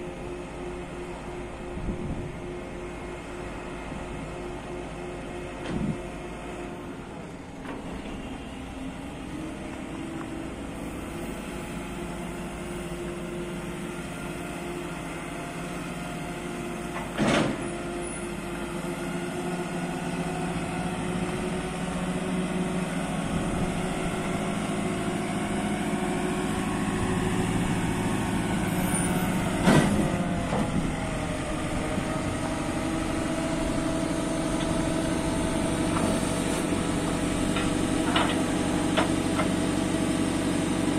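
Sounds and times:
diesel engine under load: 0:00.0 - 0:40.9.

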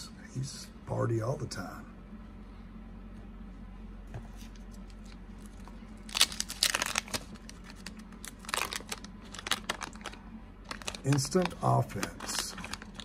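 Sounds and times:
faint steady hum: 0:00.0 - 0:13.0
cardboard cards rustling and clicking: 0:04.4 - 0:13.0.

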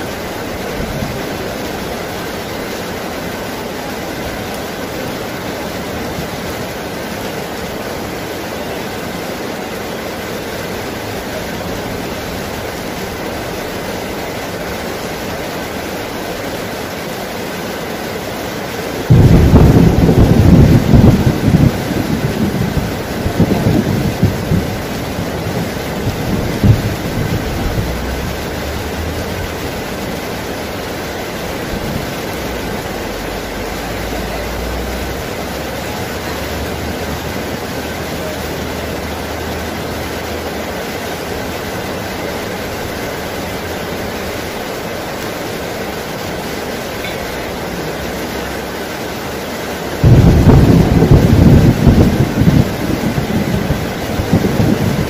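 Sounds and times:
heavy rain pouring: 0:00.0 - 0:55.0
loud thunder clap: 0:19.1 - 0:29.7, 0:50.0 - 0:55.0
low rumble of thunder: 0:19.1 - 0:30.7, 0:50.0 - 0:55.0.

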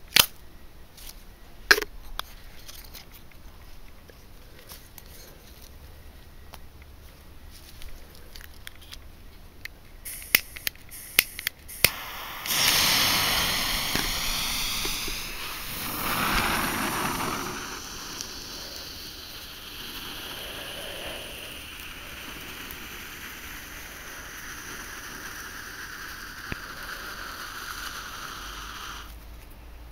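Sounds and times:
firework fountain hissing: 0:10.0 - 0:29.2
sharp clicks: 0:10.1 - 0:16.5.

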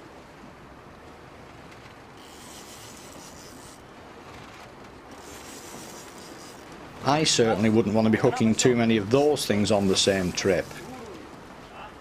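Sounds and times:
fishing reel low noise: 0:02.1 - 0:07.1, 0:09.4 - 0:11.2
fishing reel hiss: 0:02.2 - 0:03.8, 0:05.1 - 0:06.7.

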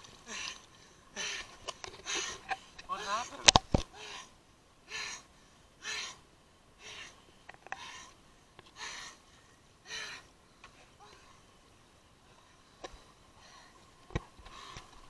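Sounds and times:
man panting heavily: 0:00.3 - 0:02.5, 0:03.9 - 0:05.2, 0:06.8 - 0:07.2, 0:08.8 - 0:10.3.

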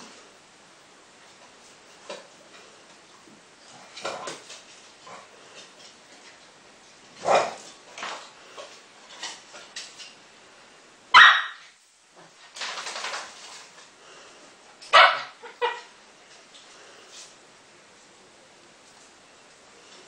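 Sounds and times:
dogs barking: 0:11.1 - 0:11.6, 0:14.9 - 0:15.9
dogs yipping: 0:11.2 - 0:11.6, 0:14.9 - 0:15.9.

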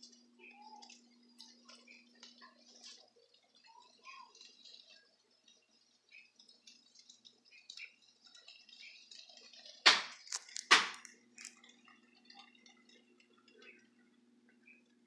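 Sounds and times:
faint clicking and ticking: 0:00.0 - 0:15.0
faint steady hum: 0:00.0 - 0:15.0
loud knocks: 0:09.9 - 0:11.0.

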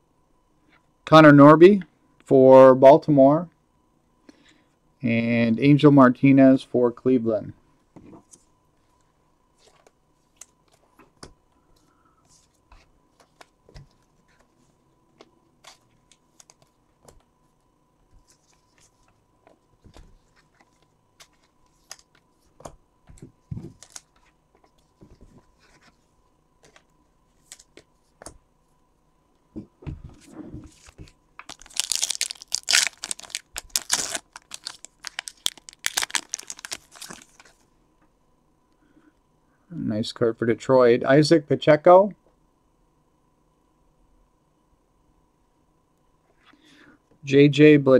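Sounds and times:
foil wrapper tearing and crinkling: 0:31.4 - 0:37.4.

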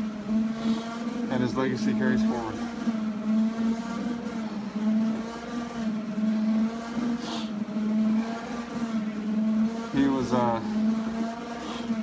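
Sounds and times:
exercise machine motor hum: 0:00.0 - 0:12.0
breath hiss through respirator mask: 0:07.2 - 0:07.6.

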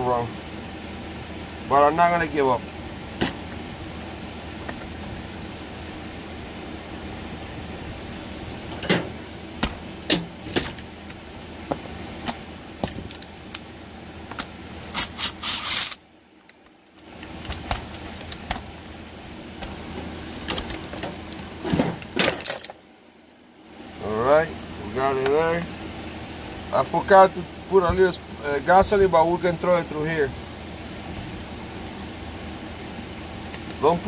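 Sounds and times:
metal tools clinking: 0:08.8 - 0:09.2, 0:11.9 - 0:13.2, 0:20.5 - 0:21.1.

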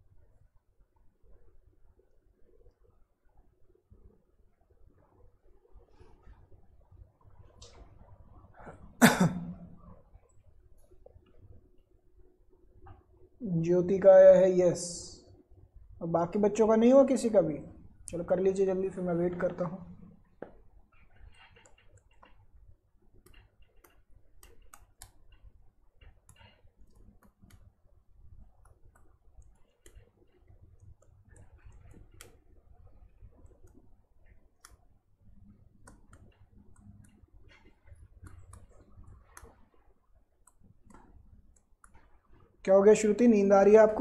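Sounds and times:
low steady hum: 0:00.0 - 0:44.0
faint clicks and taps: 0:00.2 - 0:08.8, 0:09.8 - 0:13.4, 0:19.5 - 0:42.7.

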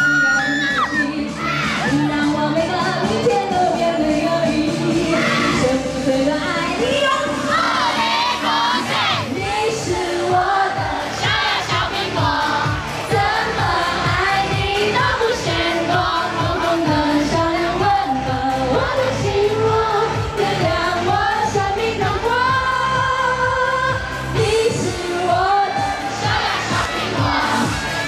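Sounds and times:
woman singing: 0:00.0 - 0:27.8
live pop band with steady beat: 0:09.3 - 0:28.0.

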